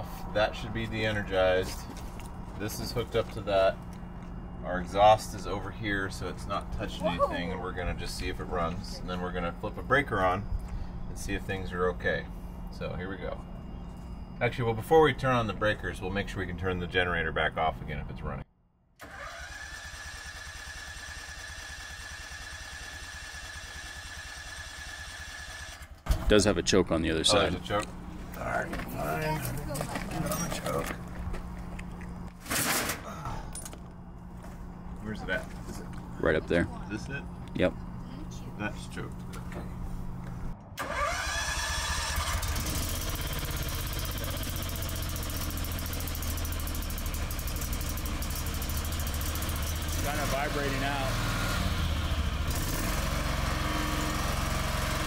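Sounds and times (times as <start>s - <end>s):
electric starter cranking engine: 19.0s - 26.0s, 40.8s - 55.0s.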